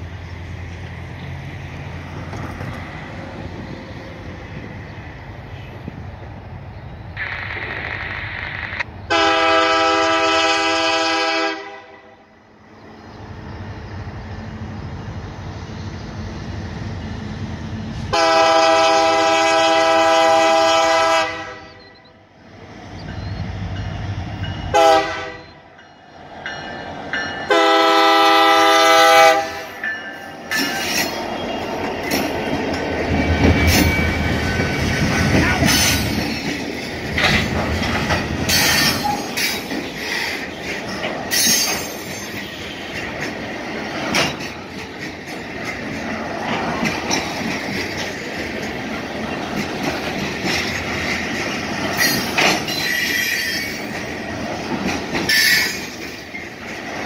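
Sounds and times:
locomotive air horn blasts: 9.1s - 12.2s, 18.1s - 22.0s, 24.7s - 25.6s, 27.5s - 29.8s
wheels clattering over rail joints: 29.7s - 57.0s.

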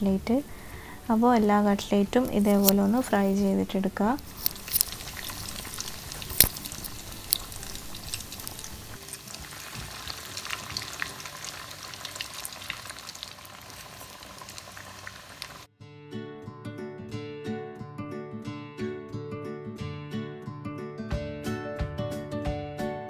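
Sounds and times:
acoustic guitar music: 4.2s - 11.6s, 15.8s - 23.0s
oil bubbling and crackling: 4.2s - 15.7s.

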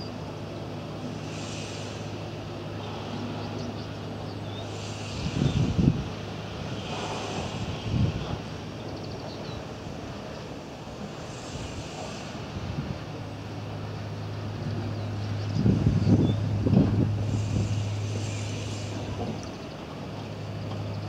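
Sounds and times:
steady low hum: 0.0s - 21.0s
wind buffeting microphone: 4.7s - 21.0s.

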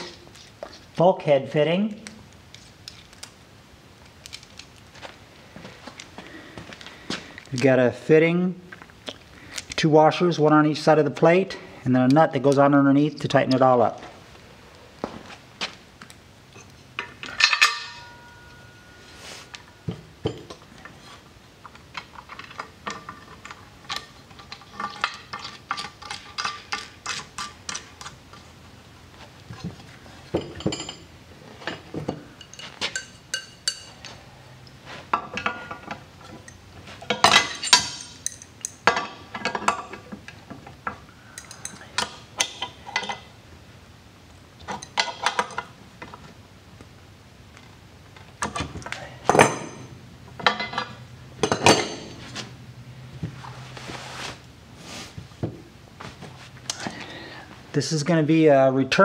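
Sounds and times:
metal clinks of wrenches: 36.4s - 39.7s.

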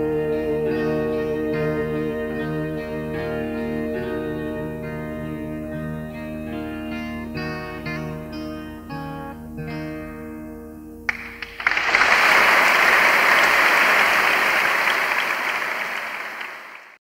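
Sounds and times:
acoustic guitar notes: 2.2s - 11.6s
audience applause: 11.1s - 17.0s.

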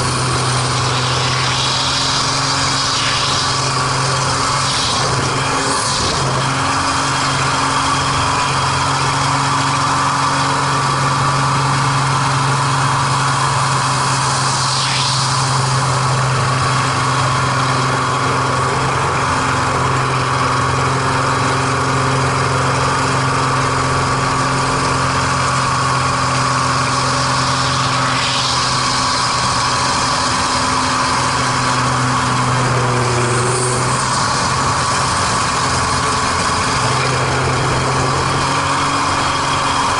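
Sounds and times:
hiss rushes: 0.0s - 7.8s, 14.0s - 17.6s, 26.1s - 39.9s
propeller plane engine droning: 0.0s - 39.9s.

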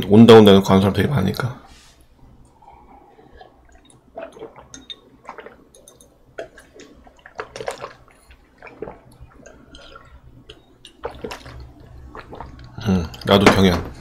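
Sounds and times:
man gulping water: 3.2s - 13.3s.

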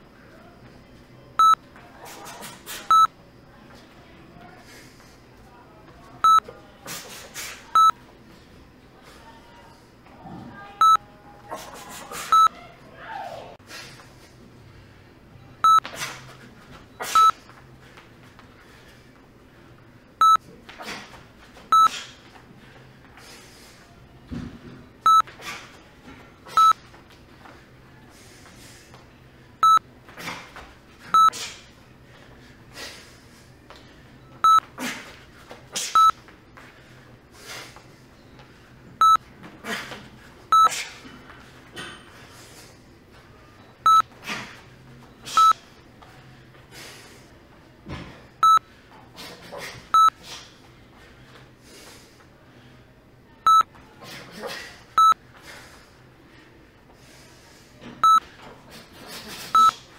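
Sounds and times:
short electronic beeps: 1.4s - 1.6s, 2.9s - 3.1s, 7.8s - 8.0s, 10.8s - 11.0s, 15.6s - 15.9s, 17.1s - 17.4s, 20.2s - 20.4s, 21.7s - 22.0s, 25.0s - 25.3s, 26.5s - 26.8s, 29.6s - 29.8s, 31.2s - 31.4s, 36.0s - 36.2s, 39.0s - 39.2s, 40.5s - 40.8s, 43.8s - 44.1s, 45.3s - 45.6s, 48.4s - 48.6s, 50.0s - 50.2s, 53.5s - 53.7s, 55.0s - 55.2s, 58.0s - 58.3s, 59.6s - 59.8s.

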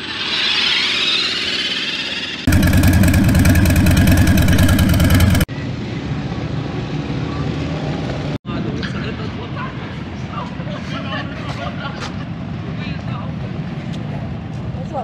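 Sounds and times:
loud motorcycle engine running: 2.5s - 5.5s
street background noise: 5.5s - 15.0s.

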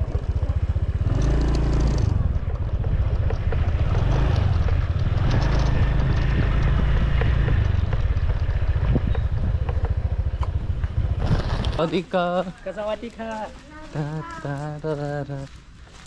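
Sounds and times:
motor scooter engine: 0.0s - 12.0s
wind rumbling on microphone: 0.0s - 12.1s.

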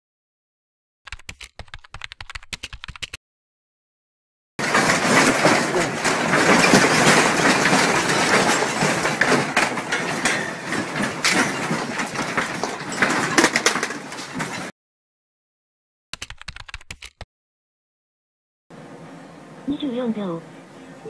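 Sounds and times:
shelves and objects rattling: 4.6s - 14.7s.

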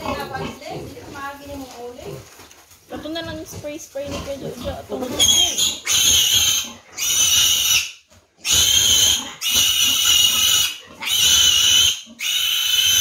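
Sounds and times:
piglet squealing: 5.0s - 13.0s.

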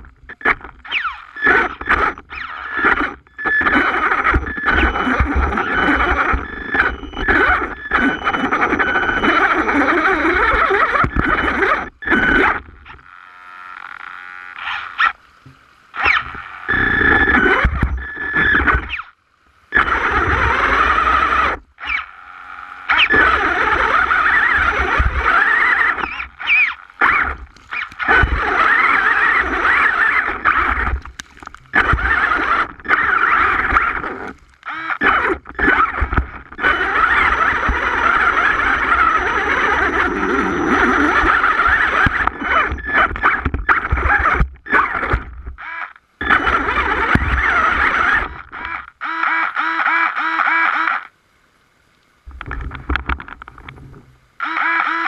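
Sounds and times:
electric motor whining: 0.0s - 51.1s, 52.3s - 55.0s
water splashing: 24.4s - 36.6s.

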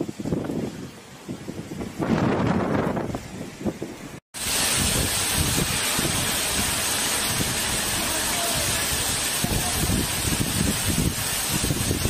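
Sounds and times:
heavy rain pouring on pavement: 4.4s - 12.0s.

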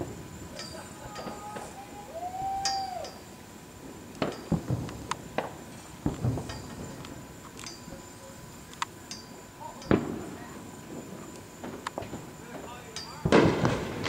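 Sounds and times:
distant fireworks bangs and booms: 0.0s - 14.0s
pitched wail: 1.0s - 3.3s.

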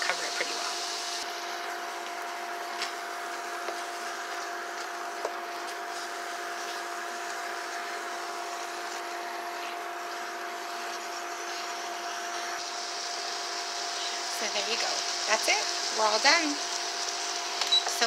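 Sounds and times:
constant hum: 0.0s - 18.0s
food sizzling in frying pan: 0.0s - 18.0s.

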